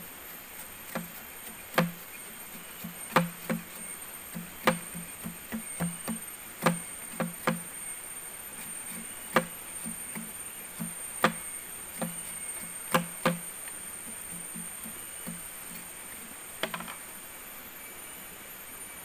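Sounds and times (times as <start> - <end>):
high-pitched insect drone: 0.0 - 19.0
sharp knocks or chops: 0.9 - 2.0, 2.8 - 7.7, 8.7 - 15.5.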